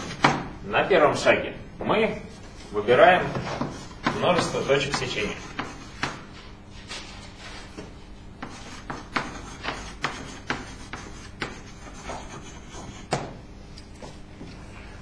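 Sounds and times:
chalk tapping and scratching: 3.3 - 6.3, 8.4 - 13.3.

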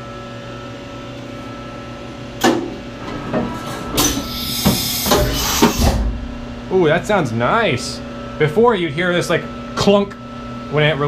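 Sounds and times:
steady machine hum: 0.0 - 11.0
loud air hiss: 4.0 - 6.2.

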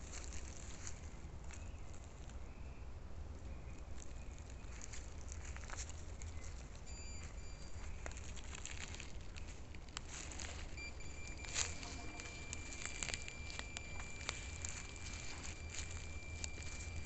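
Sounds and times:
footsteps on forest floor: 0.0 - 2.4, 4.0 - 17.0
leaves and twigs crackling underfoot: 0.0 - 2.6, 3.6 - 17.0
thin steady high tone: 6.9 - 8.0, 10.4 - 17.0.

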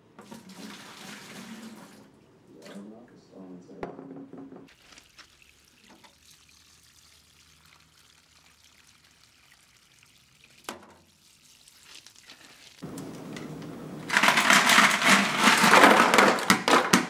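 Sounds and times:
water trickling onto pebbles: 4.7 - 14.2.

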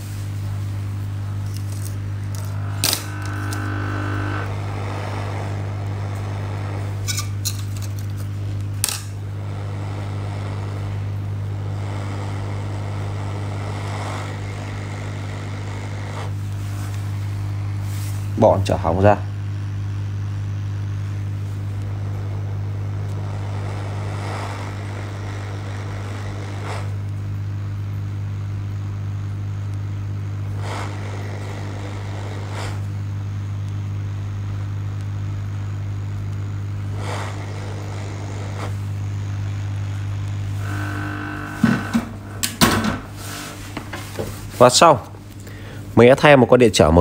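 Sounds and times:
hot air gun humming and blowing: 0.0 - 46.0.

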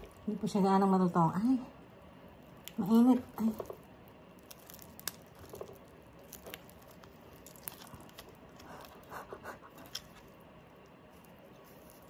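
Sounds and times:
person chewing food: 3.4 - 12.0.

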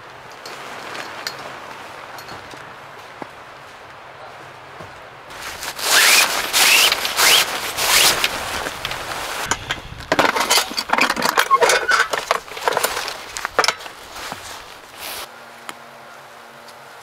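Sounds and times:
snow crunching: 0.0 - 10.1, 11.9 - 15.3
snow scraping: 5.3 - 10.0, 11.5 - 15.3.

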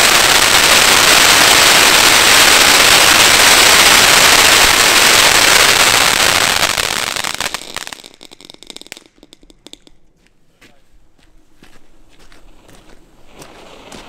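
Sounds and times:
firework fountain hissing: 0.0 - 9.9, 13.2 - 14.0
firework crackles: 0.0 - 10.0, 12.4 - 14.0.

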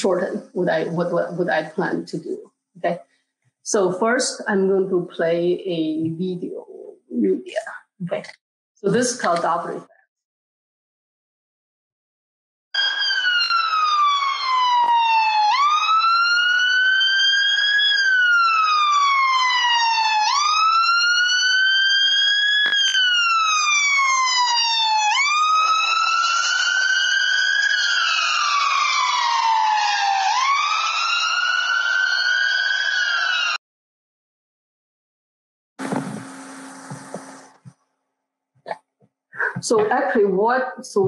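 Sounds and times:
ambulance siren wailing: 12.8 - 33.6.

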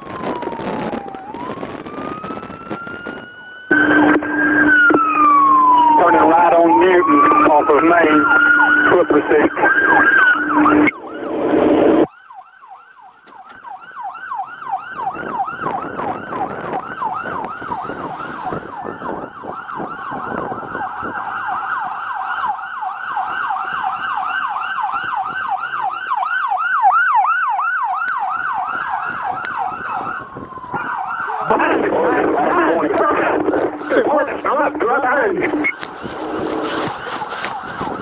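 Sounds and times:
police siren wailing and yelping: 0.0 - 38.0.

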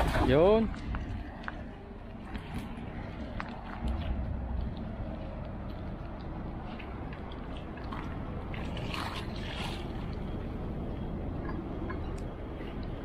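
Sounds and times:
wind buffeting microphone: 0.0 - 13.0
water splashing: 3.6 - 10.8.

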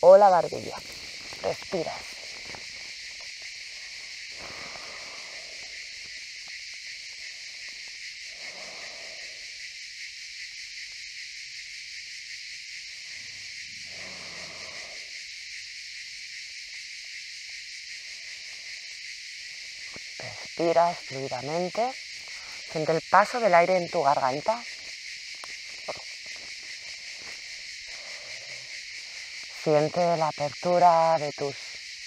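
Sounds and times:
cicadas droning: 0.0 - 32.0.

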